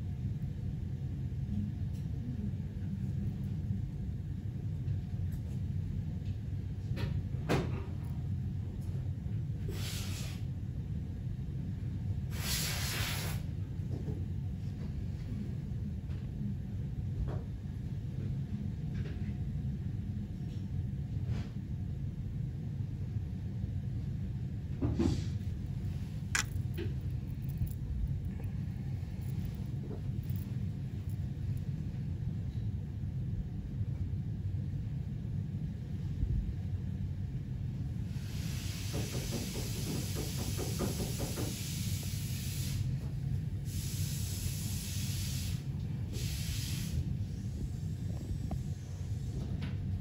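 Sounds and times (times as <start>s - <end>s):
low background rumble: 0.0s - 12.6s, 13.4s - 38.6s, 45.6s - 50.0s
high hiss: 12.3s - 13.4s, 43.7s - 47.8s.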